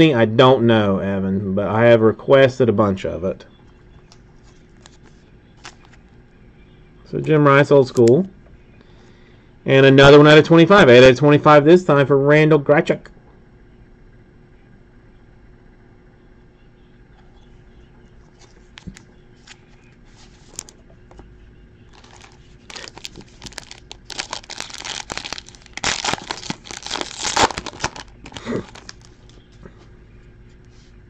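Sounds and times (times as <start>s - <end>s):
foil pack crinkling and tearing: 20.3s - 20.7s, 21.9s - 29.4s.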